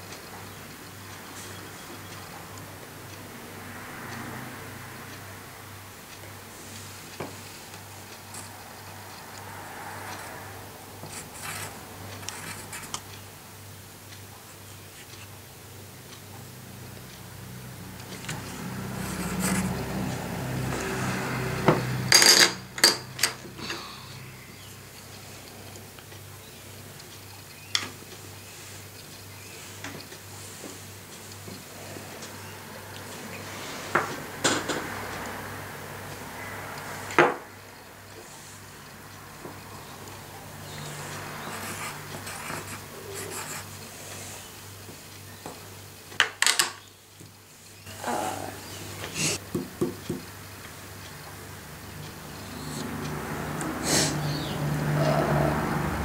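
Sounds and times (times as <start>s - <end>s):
pencil scratching on paper: 11.0s - 13.0s, 18.5s - 20.4s, 40.7s - 43.9s.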